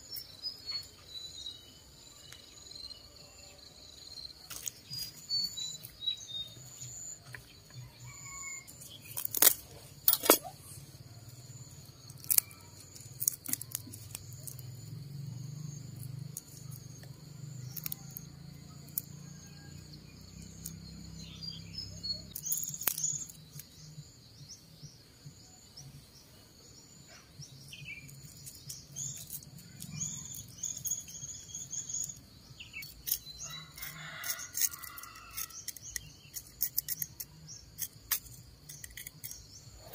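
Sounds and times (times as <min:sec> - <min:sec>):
birds chirping: 0:00.0 - 0:18.8, 0:20.3 - 0:39.9
high insect trill: 0:00.0 - 0:39.9.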